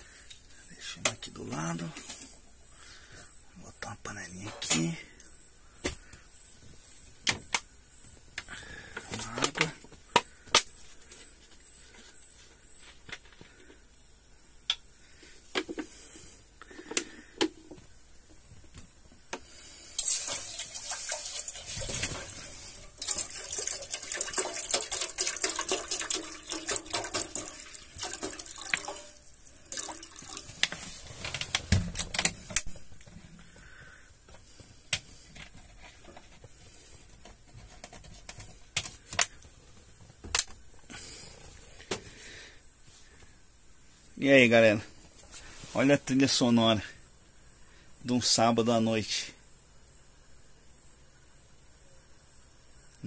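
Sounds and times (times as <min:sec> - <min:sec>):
water poured into metal pot: 0:20.0 - 0:30.5.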